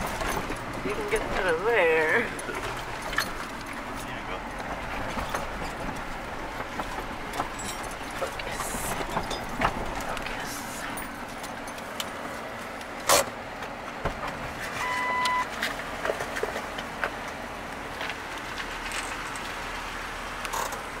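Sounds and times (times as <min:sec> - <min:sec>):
car engine idling: 0:00.0 - 0:21.0
short electronic beep: 0:14.8 - 0:15.5.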